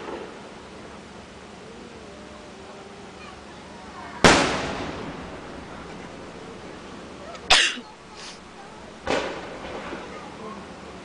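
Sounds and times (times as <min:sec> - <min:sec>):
firework shells exploding: 0:04.2 - 0:10.1.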